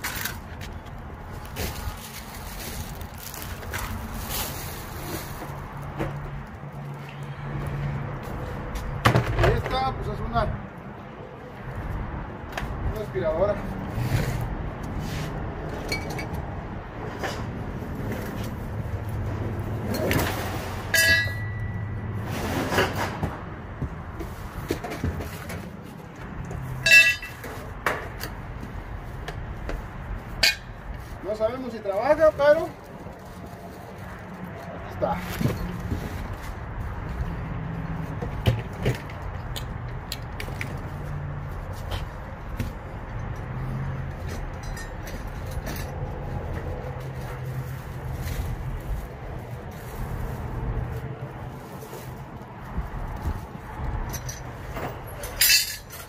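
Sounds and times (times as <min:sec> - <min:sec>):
sharp ringing clink: 0:21.0 - 0:21.8.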